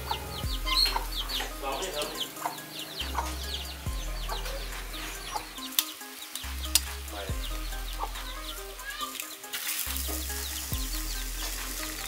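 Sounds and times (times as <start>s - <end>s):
chickens clucking: 0.0s - 6.4s.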